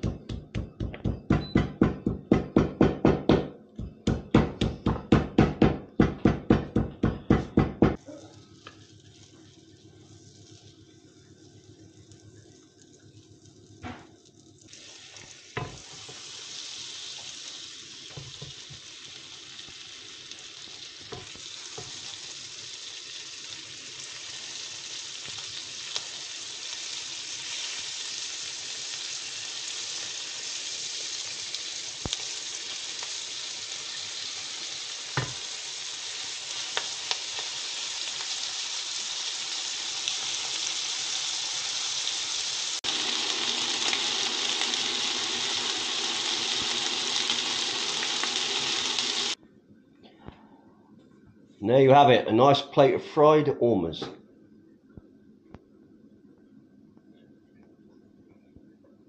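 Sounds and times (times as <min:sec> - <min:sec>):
food sizzling in butter: 0:08.0 - 0:49.4.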